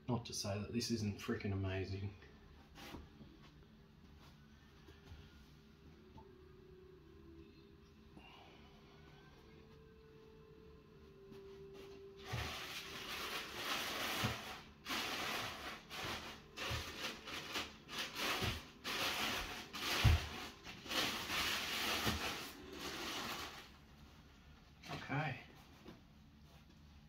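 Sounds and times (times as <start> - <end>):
plastic wrapping crinkling: 12.2 - 24.0.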